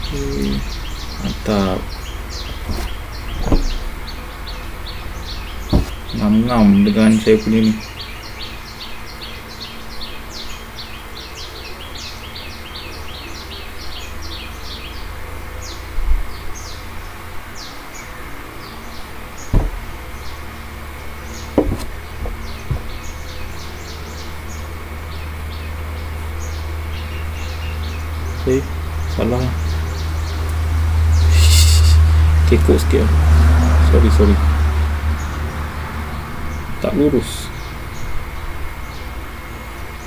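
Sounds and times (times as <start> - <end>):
birds chirping: 0.0 - 40.0
soft knocks: 2.4 - 3.9, 5.7 - 6.2, 19.5 - 19.9, 21.6 - 23.0.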